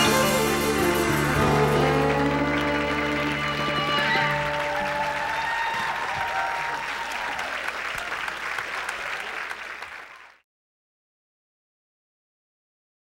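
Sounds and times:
fiddle band playing: 0.0 - 5.9
audience applauding: 0.0 - 10.4.

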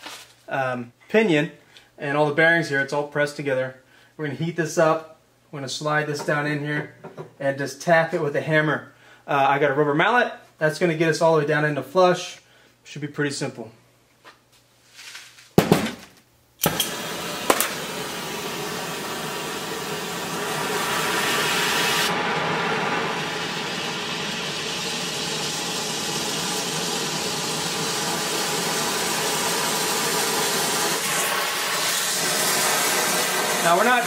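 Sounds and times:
gas torch igniter clicks: 16.6 - 18.7
torch flame hissing: 16.6 - 34.0.

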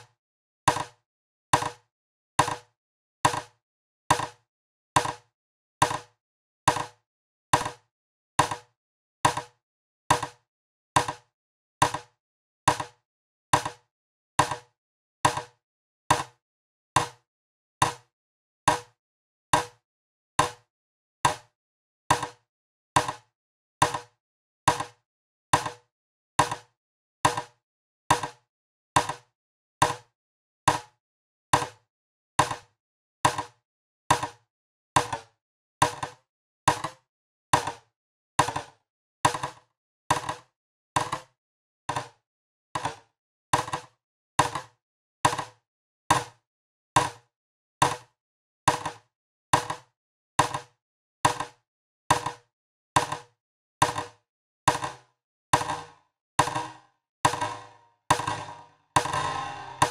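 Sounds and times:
short electronic percussive hits: 57.3 - 59.9.

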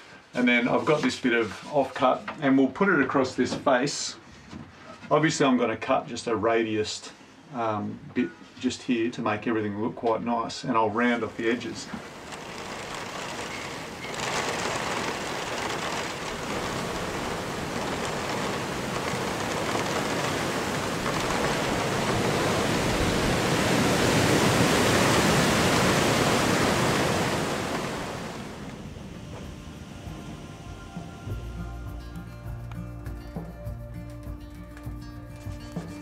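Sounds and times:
wind rushing through trees: 11.3 - 31.5.

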